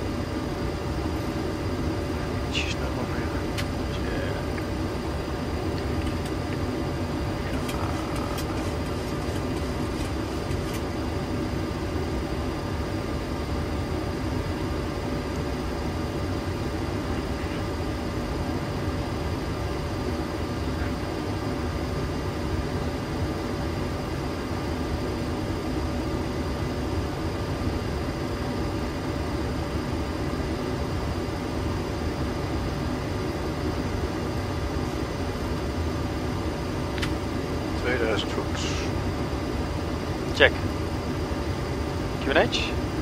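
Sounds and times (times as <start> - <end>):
aircraft engine hum: 0.0 - 43.0
faint steady whine: 0.0 - 43.0.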